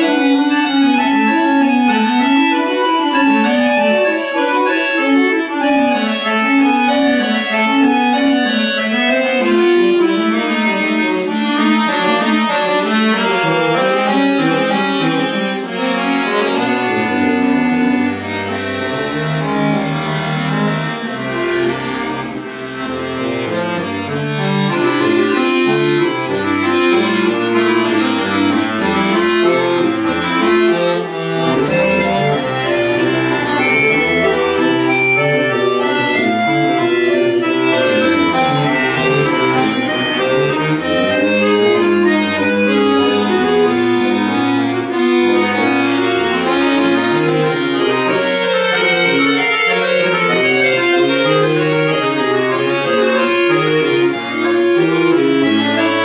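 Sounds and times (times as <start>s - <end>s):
button accordion playing classical music: 0.0s - 56.0s.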